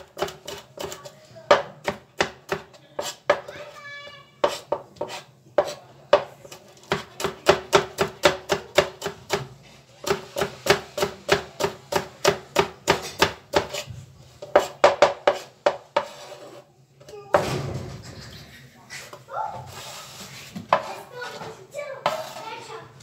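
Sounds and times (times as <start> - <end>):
knife chopping on cutting board: 0.0 - 3.5, 4.4 - 16.4.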